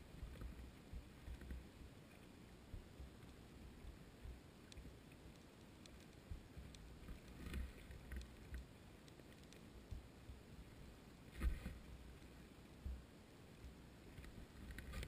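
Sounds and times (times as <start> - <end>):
sharp underwater clicks: 4.6 - 10.1.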